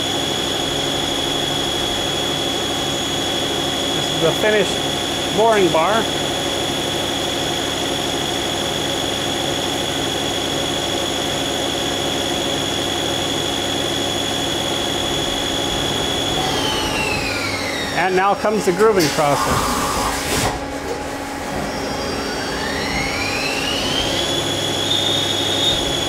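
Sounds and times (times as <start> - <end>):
high spindle whine: 0.0 - 26.0
lathe cutting metal: 12.6 - 20.1, 21.7 - 26.0.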